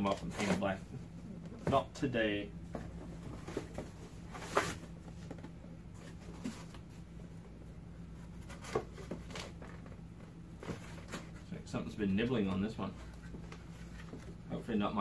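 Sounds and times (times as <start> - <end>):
cardboard rustling and scraping: 0.0 - 0.8, 2.7 - 11.5, 12.3 - 14.5
low steady hum: 0.0 - 15.0.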